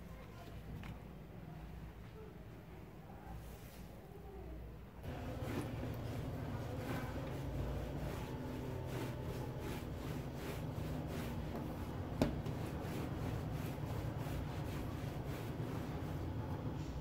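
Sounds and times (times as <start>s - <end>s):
low steady hum: 4.3s - 17.0s
hands rubbing dough on countertop: 5.0s - 17.0s.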